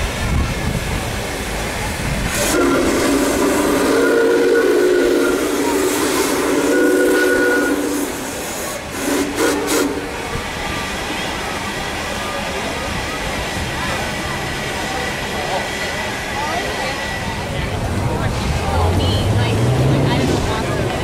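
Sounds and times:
low rumbling noise: 0:00.0 - 0:21.0
steam chime whistle: 0:02.4 - 0:10.2.

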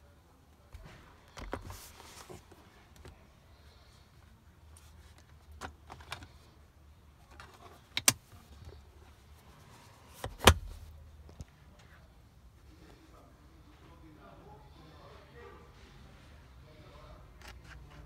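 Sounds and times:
plastic cup holder clicks: 0:07.9 - 0:08.2
plastic armrest knock and thud: 0:10.2 - 0:10.8.

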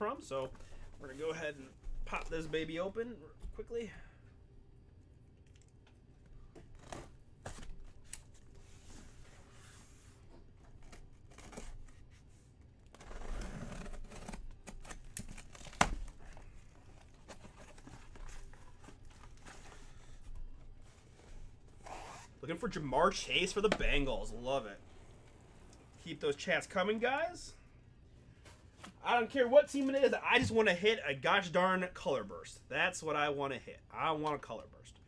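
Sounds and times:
cardboard and tape tearing: 0:10.7 - 0:20.2.

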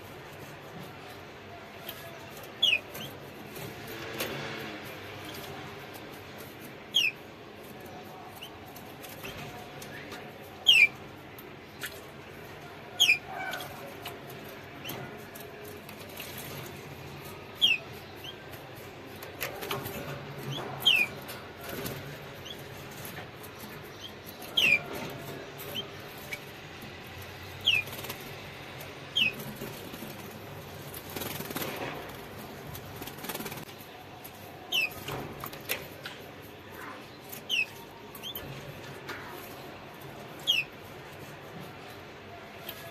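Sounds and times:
canary chirps: 0:00.0 - 0:42.9
bird wings fluttering and splashing: 0:29.2 - 0:33.7.

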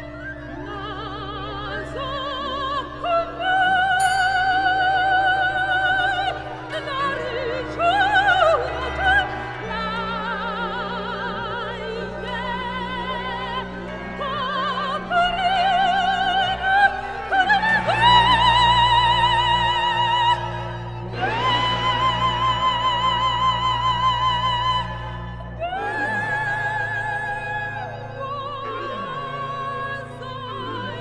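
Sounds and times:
chamber orchestra arpeggios: 0:00.0 - 0:31.0
soprano singing with vibrato: 0:00.0 - 0:31.0.

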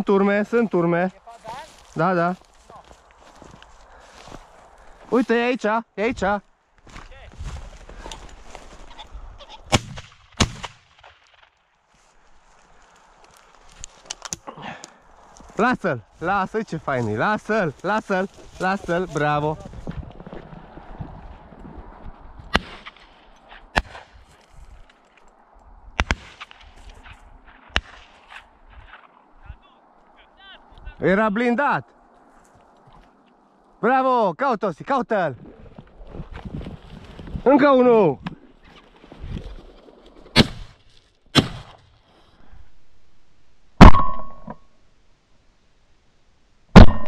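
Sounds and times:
shotgun shots: 0:09.7 - 0:11.3, 0:22.5 - 0:23.1, 0:23.8 - 0:24.1, 0:26.0 - 0:26.7, 0:41.4 - 0:41.7, 0:46.8 - 0:47.0.

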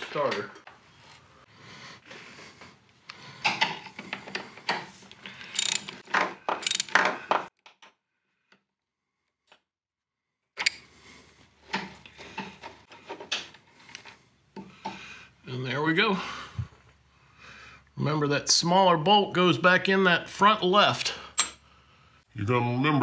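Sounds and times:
socket ratchet clicking: 0:05.5 - 0:06.0, 0:06.6 - 0:07.0.

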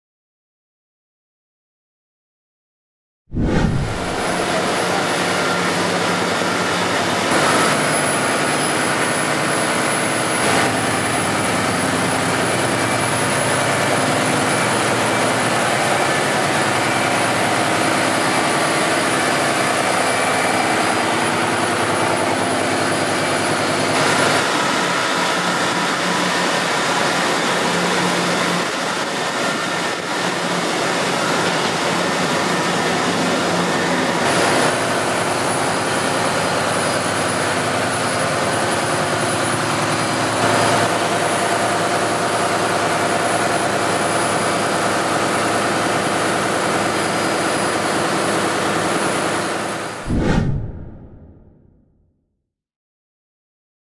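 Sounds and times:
thin high whine: 0:03.3 - 0:05.1.

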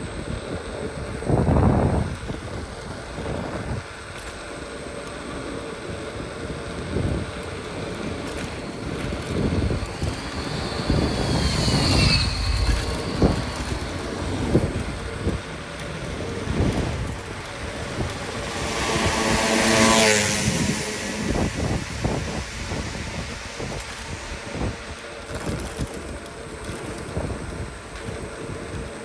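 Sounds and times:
road rumble: 0:00.0 - 0:29.0
wind buffeting microphone: 0:00.0 - 0:29.0
motor vehicle passing close: 0:08.3 - 0:25.3
high squeal falling in pitch: 0:09.8 - 0:14.2.

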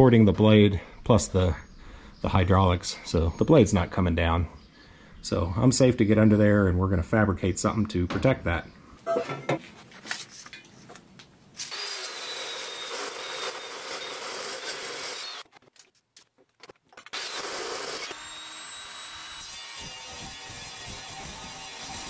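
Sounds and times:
chop saw cutting steel: 0:11.6 - 0:15.6, 0:17.0 - 0:22.0.

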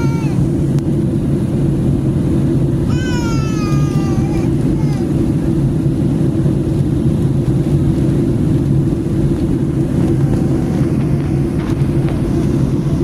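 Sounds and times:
airplane cabin drone: 0:00.0 - 0:13.0.

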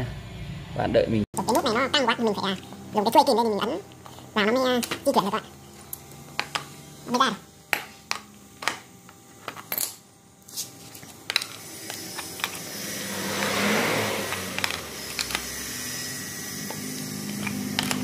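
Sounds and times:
clicks of tools being handled: 0:11.0 - 0:12.7, 0:14.3 - 0:15.6, 0:16.6 - 0:18.0
engine running: 0:11.3 - 0:18.0.

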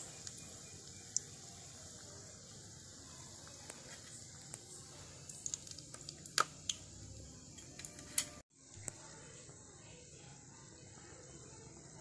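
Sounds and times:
oil sizzling with pops: 0:00.0 - 0:09.0
metal spoon stirring: 0:07.5 - 0:08.4.

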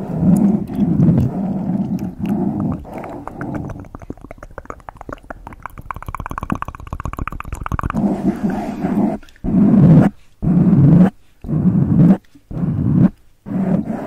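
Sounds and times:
rapid fine crackling: 0:00.0 - 0:10.2
brush rubbing on microphone: 0:07.1 - 0:14.0.

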